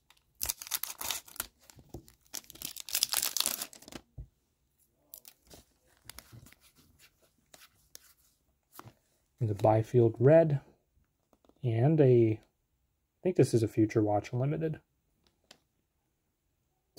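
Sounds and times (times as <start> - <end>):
card pack wrapper crinkling and tearing: 0.1 - 4.1, 5.1 - 6.7
cards rustling and clicking: 0.1 - 4.1, 5.1 - 9.7.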